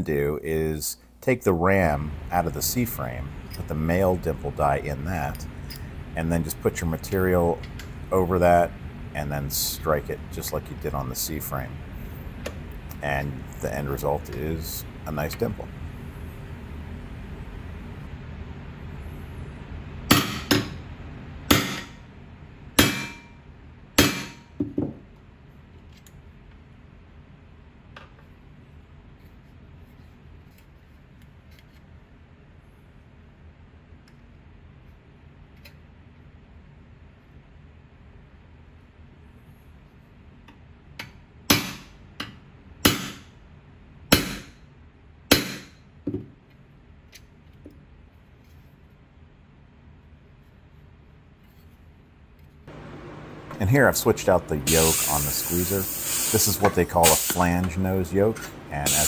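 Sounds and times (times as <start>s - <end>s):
hammer striking steel with metallic ring: 22.8s - 23.4s.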